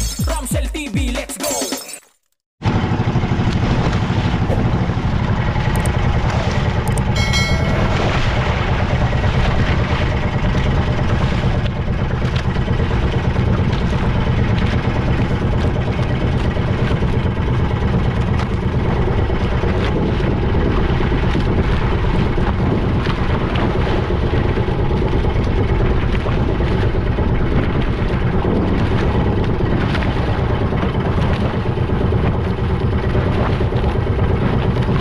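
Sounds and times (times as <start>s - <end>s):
boat engine droning: 2.6s - 35.0s
brief high tone: 7.2s - 8.7s.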